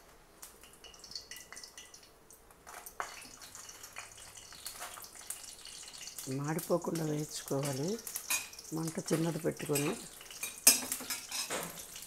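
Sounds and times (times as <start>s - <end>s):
chillies sizzling in hot oil: 0.0s - 12.0s.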